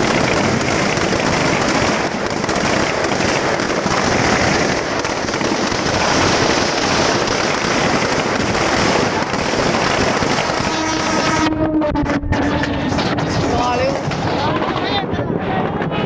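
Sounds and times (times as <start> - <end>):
firecrackers crackling: 0.0 - 16.0.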